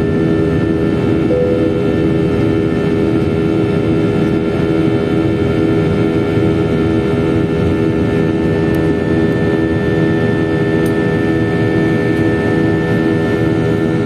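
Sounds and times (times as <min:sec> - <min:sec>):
jet engine rumble in cabin: 0:00.0 - 0:14.0
steady whining tones: 0:01.3 - 0:03.9.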